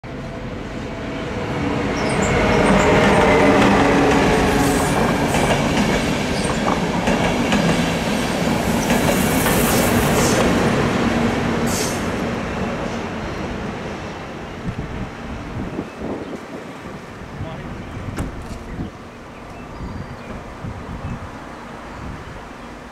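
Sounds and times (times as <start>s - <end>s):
electric locomotive hum: 0.1s - 22.9s
train wheels clattering over rails: 2.1s - 12.3s.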